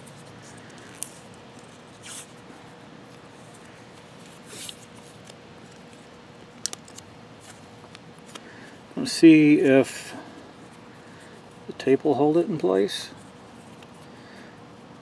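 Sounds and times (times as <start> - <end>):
tape peeling: 0.0 - 2.4, 3.1 - 8.5
faint steady hum: 0.0 - 15.0.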